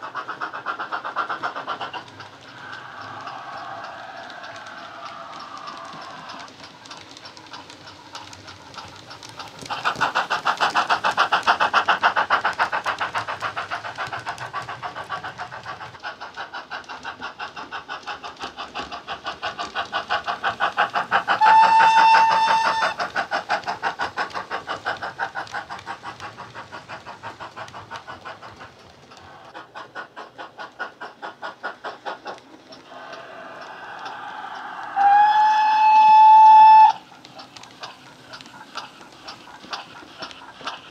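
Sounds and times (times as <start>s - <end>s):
model locomotive steam chuffs: 0.0s - 40.9s
steam whistle blast: 21.4s - 23.0s, 34.9s - 37.0s.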